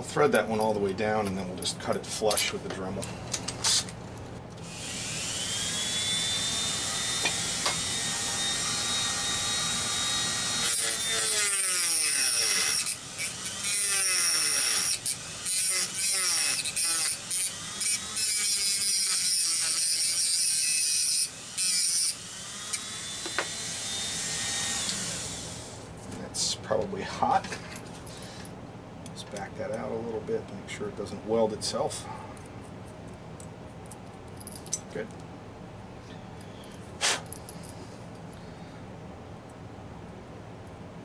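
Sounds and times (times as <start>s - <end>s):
rotary tool whining and cutting: 4.6s - 25.8s.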